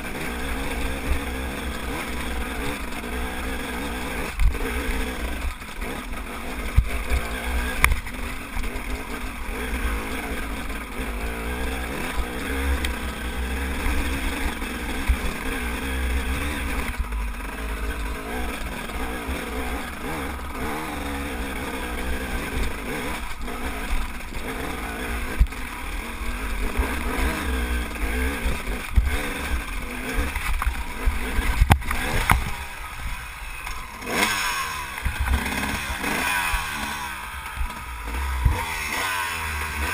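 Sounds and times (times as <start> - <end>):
dirt bike engine under load: 0.0 - 39.9.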